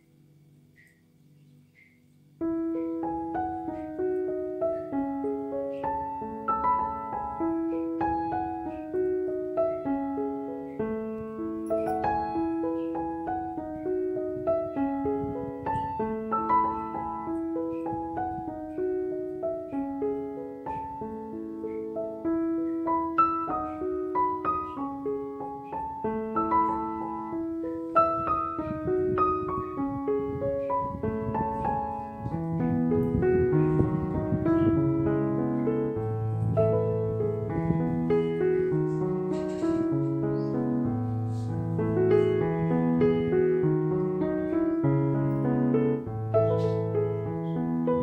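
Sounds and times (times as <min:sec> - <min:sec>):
gentle piano melody: 0:00.0 - 0:48.0.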